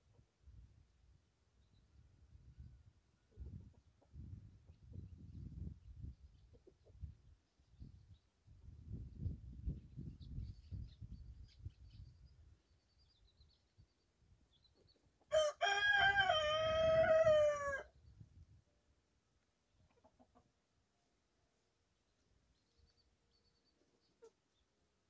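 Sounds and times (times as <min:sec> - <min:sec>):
rooster crowing: 0:15.3 - 0:17.9.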